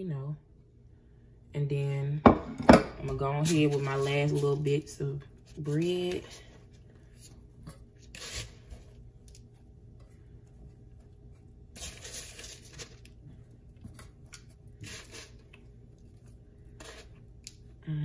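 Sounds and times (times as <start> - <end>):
dough rustling in a bowl: 3.2 - 17.4.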